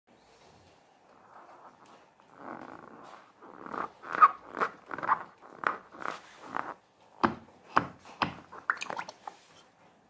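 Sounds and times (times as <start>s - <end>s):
rubber balloon rubbing and squeaking: 1.1s - 6.9s.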